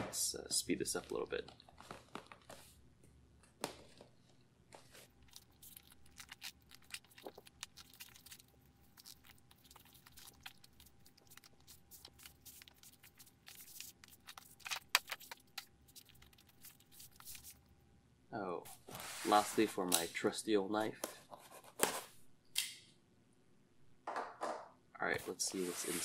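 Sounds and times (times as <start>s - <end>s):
cardboard scraping and rustling: 25.5s - 26.0s.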